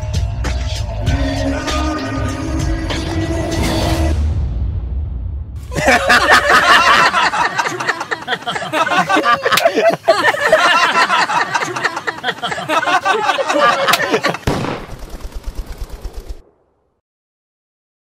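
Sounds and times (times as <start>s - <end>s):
sharp bangs: 14.4s - 16.9s.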